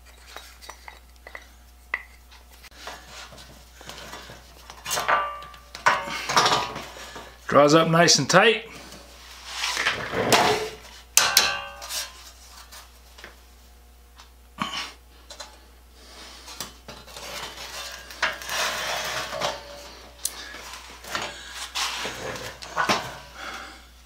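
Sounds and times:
metal saw blade clanking: 11.2s - 12.2s
wooden handle scraping on metal: 17.0s - 20.0s.

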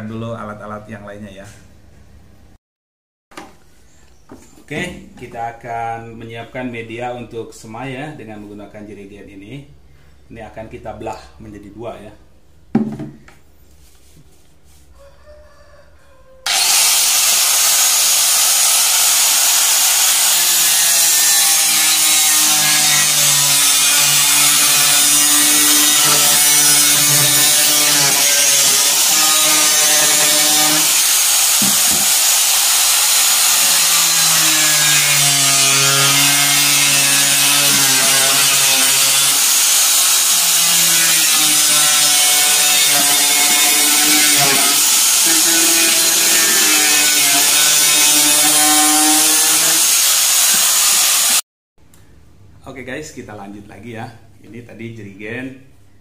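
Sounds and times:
angle grinder cutting plastic: 16.5s - 51.4s.

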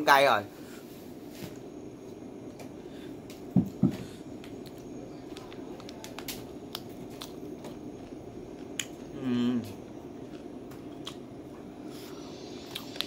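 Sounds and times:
background hum: 0.0s - 13.0s
crunchy chewing: 4.4s - 13.0s.

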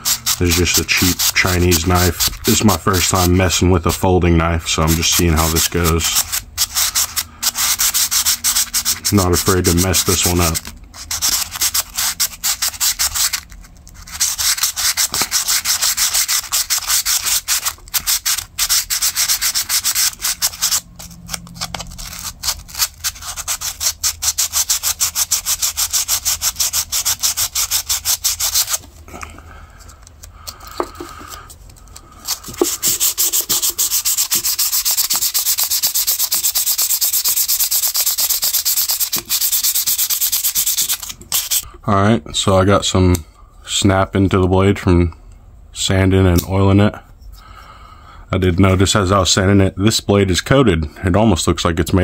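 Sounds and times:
sandpaper rasping on metal: 0.0s - 3.4s, 4.9s - 28.8s, 32.2s - 41.7s.

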